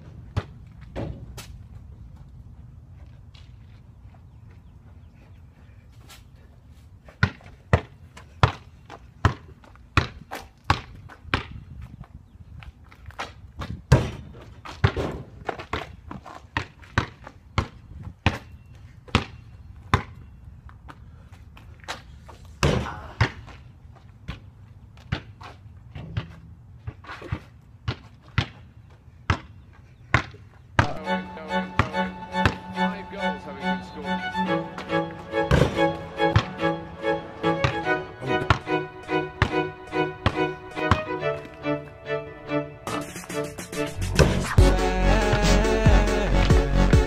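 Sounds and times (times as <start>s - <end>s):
basketball bouncing: 7.2s - 11.6s, 13.6s - 18.5s, 19.1s - 20.2s, 24.2s - 28.6s, 29.3s - 29.5s, 30.1s - 31.0s, 31.8s - 32.7s, 35.5s - 36.6s, 37.6s - 38.7s, 39.3s - 41.1s.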